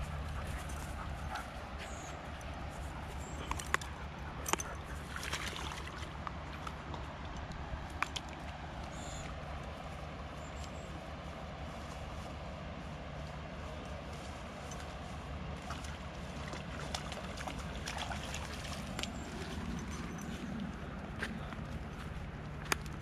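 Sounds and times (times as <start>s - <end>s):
river trickling: 0.0s - 23.0s
dog splashing in water: 4.5s - 6.1s, 15.6s - 20.6s.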